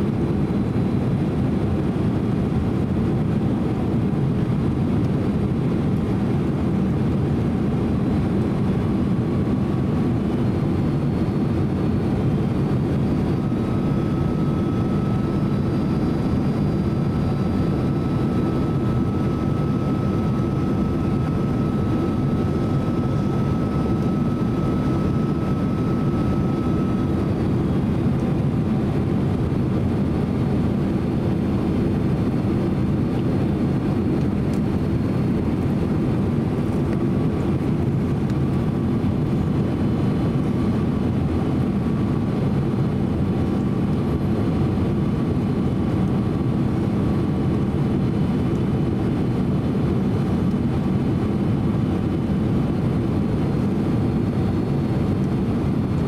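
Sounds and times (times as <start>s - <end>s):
jet engine cabin rumble: 0.0s - 56.0s
faint thin whine: 8.2s - 30.6s.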